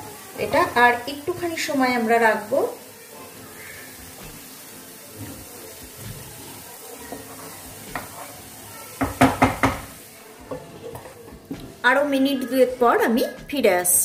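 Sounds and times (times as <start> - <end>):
faint sizzling in a pan: 0.0 - 14.0
spatula scraping a pan: 3.5 - 8.6, 10.4 - 11.6
sharp knocks against a pan: 7.9 - 8.2, 9.0 - 11.6.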